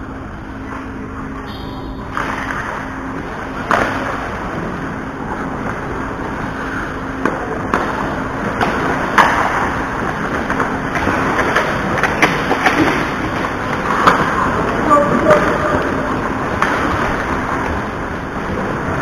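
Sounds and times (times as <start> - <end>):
low steady hum: 0.0 - 19.0
hockey sticks and puck clacking: 1.6 - 4.4, 6.6 - 17.9
skate blades scraping ice: 6.4 - 17.9.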